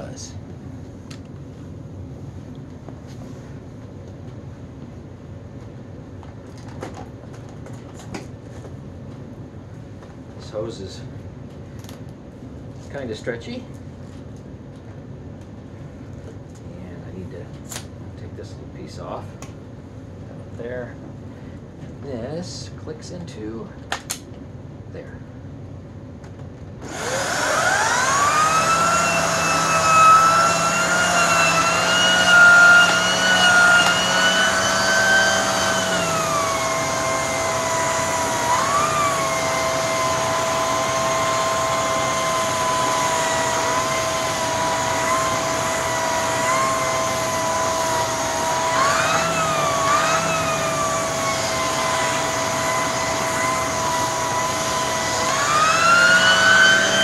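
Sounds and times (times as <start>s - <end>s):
vacuum cleaner motor whine: 26.8s - 57.0s.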